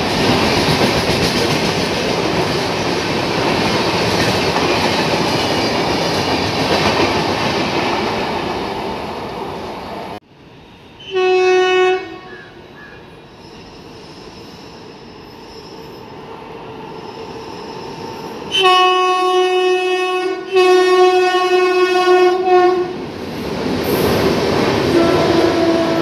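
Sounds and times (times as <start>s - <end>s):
train rumble: 0.0s - 11.2s, 11.9s - 26.0s
locomotive horn blasts: 11.0s - 12.5s, 18.5s - 23.0s, 24.9s - 26.0s.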